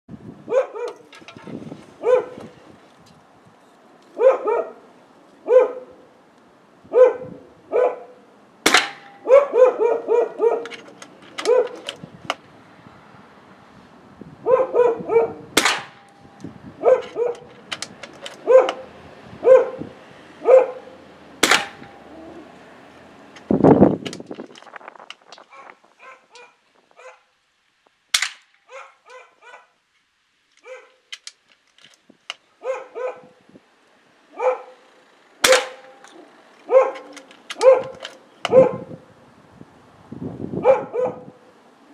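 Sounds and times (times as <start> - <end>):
dog barking: 0.5 - 1.0, 2.0 - 2.4, 4.2 - 4.8, 5.4 - 6.0, 6.9 - 8.2, 9.2 - 10.8, 11.4 - 11.9, 14.4 - 15.5, 16.8 - 17.5, 18.4 - 18.8, 19.4 - 21.0, 25.5 - 27.3, 28.7 - 29.8, 30.6 - 31.0, 32.6 - 33.4, 34.3 - 34.8, 36.7 - 38.9, 40.6 - 41.4
suppressed air rifle cracks: 8.7 - 9.4, 15.6 - 16.2, 21.4 - 22.0, 28.2 - 28.6, 35.4 - 36.2.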